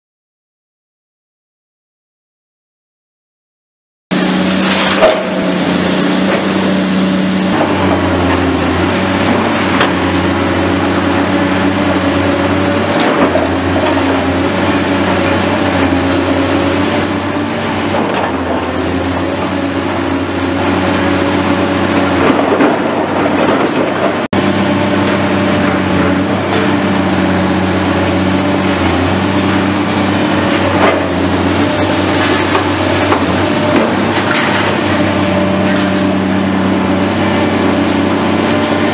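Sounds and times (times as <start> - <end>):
excavator diesel engine running: 4.1 - 38.9
rubble and scrap clattering: 21.8 - 24.3, 28.7 - 36.2.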